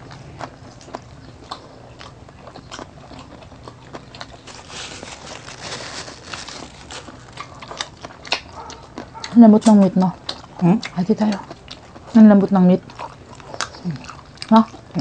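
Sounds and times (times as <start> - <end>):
chewing and mouth clicks: 0.0 - 12.2, 12.8 - 15.0
paper napkin rustling: 4.4 - 7.5.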